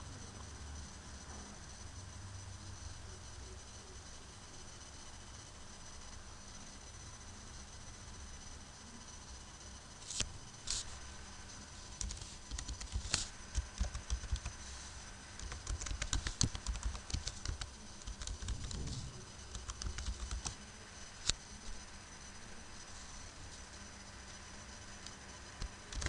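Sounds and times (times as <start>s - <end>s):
computer keyboard typing: 11.9s - 14.6s, 15.4s - 20.6s, 25.6s - 26.0s.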